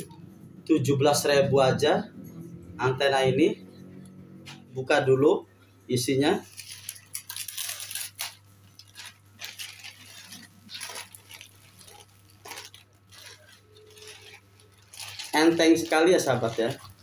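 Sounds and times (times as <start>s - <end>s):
plastic packaging crinkling: 6.4s - 17.0s.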